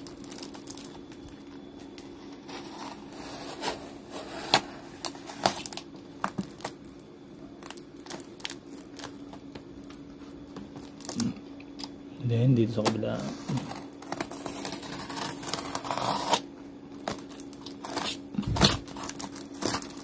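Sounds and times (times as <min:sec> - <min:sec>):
tape crackling and snapping: 0:00.0 - 0:03.0, 0:04.4 - 0:12.0, 0:12.8 - 0:20.0
wrapping rustling: 0:00.0 - 0:06.8, 0:07.5 - 0:11.3, 0:17.0 - 0:20.0
box cutter slicing packing tape: 0:14.0 - 0:16.4, 0:17.1 - 0:20.0.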